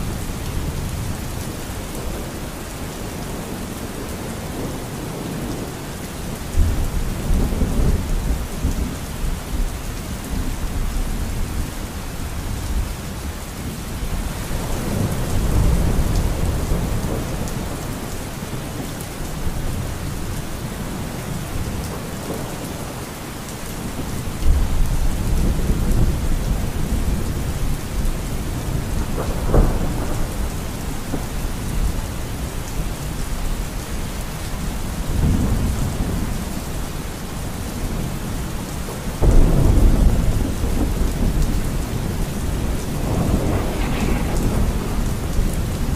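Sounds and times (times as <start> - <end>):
steady rain: 0.0 - 45.9
low thunder rumbling: 14.1 - 23.0, 23.8 - 45.9.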